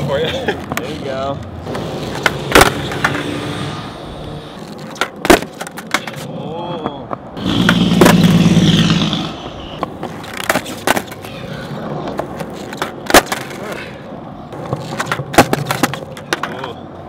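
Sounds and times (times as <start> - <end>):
skateboard wheels rolling on asphalt: 0.0 - 17.0
skateboard deck clacks: 1.7 - 3.3, 4.6 - 8.2, 9.8 - 13.8, 14.5 - 16.9.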